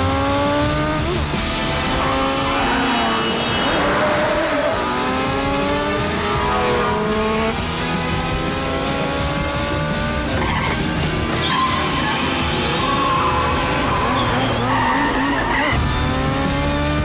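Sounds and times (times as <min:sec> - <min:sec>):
film score music: 0:00.0 - 0:17.0
motorcycle engines revving: 0:00.0 - 0:17.0.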